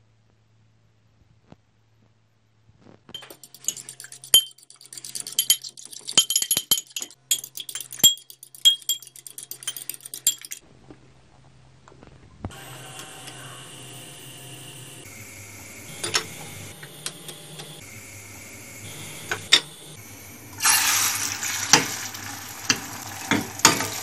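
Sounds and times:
fork clinking against bowl: 3.2 - 10.6.

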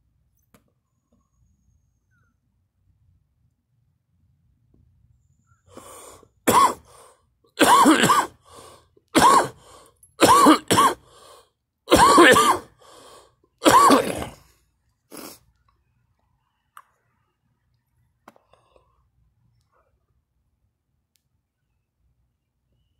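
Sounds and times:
quiet breaths: 5.2 - 7.4, 8.4 - 10.1, 11.0 - 11.7, 12.7 - 13.6, 14.4 - 20.5
person coughing and gagging: 6.5 - 6.9, 7.6 - 8.4, 9.2 - 9.6, 10.2 - 11.0, 11.9 - 12.8, 13.6 - 14.4.

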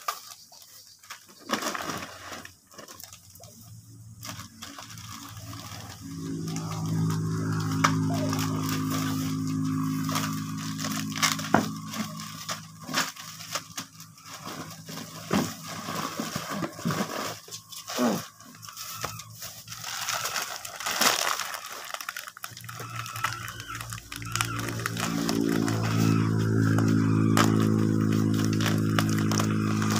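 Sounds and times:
plastic bags crinkling: 0.0 - 29.9
steady low hum: 3.6 - 17.9, 22.6 - 29.9
clicks and crackles: 19.0 - 29.9.

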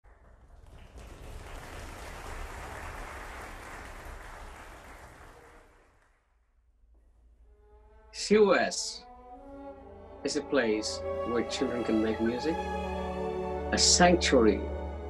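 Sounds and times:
audience applause: 0.0 - 6.2.

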